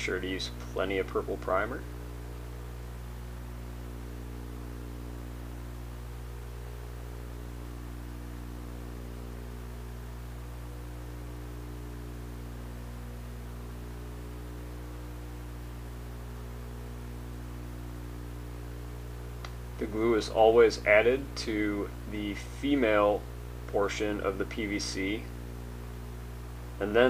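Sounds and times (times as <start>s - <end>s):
electrical mains hum: 0.0s - 27.0s.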